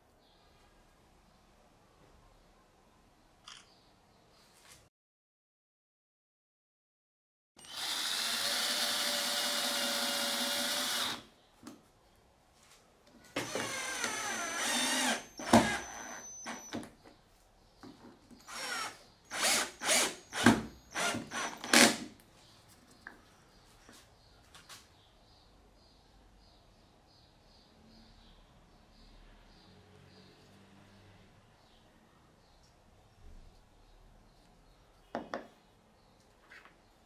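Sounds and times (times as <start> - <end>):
cordless drill running: 7.6 - 11.2, 13.4 - 16.8, 18.5 - 22.1.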